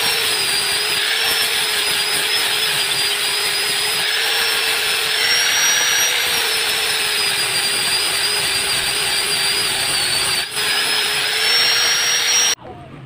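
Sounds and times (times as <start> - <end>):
angle grinder whine: 0.0 - 12.6.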